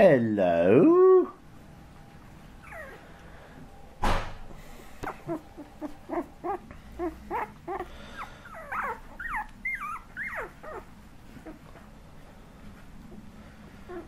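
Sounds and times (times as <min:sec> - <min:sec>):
puppies whimpering: 0:02.6 - 0:03.2, 0:05.0 - 0:11.8.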